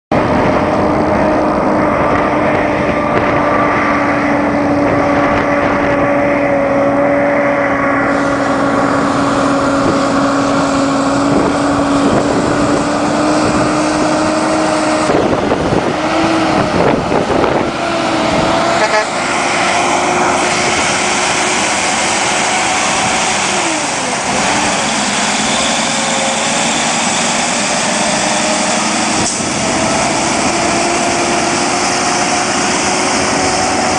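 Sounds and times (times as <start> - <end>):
truck diesel engine passing: 0.1 - 33.9
tyres and air hissing: 18.1 - 33.9.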